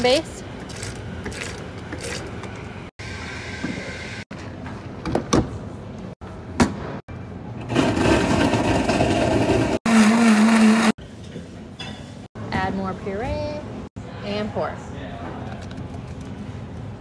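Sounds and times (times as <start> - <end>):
blender blending ice: 7.7 - 11.0.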